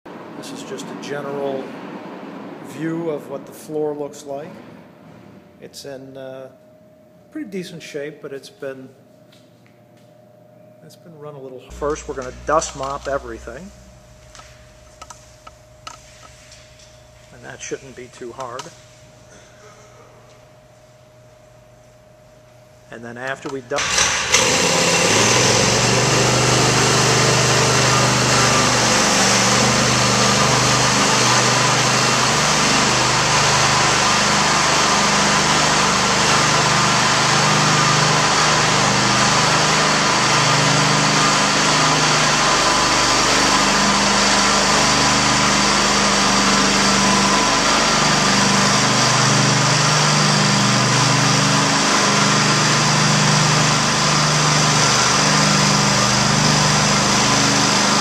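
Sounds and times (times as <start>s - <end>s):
floor cleaning machine engine: 11.7s - 20.6s, 23.5s - 58.0s.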